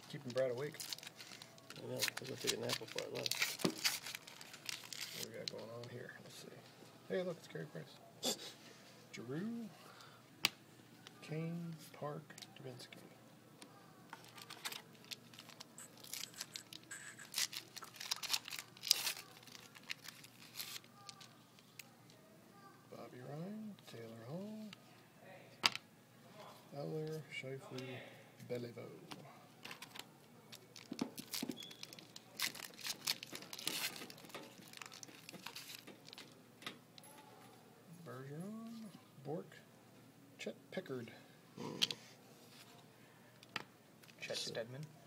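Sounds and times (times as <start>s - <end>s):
wrapper tearing and crinkling: 0.0s - 5.9s, 14.2s - 21.8s, 29.7s - 36.4s
trading cards sliding and clicking: 15.8s - 17.6s.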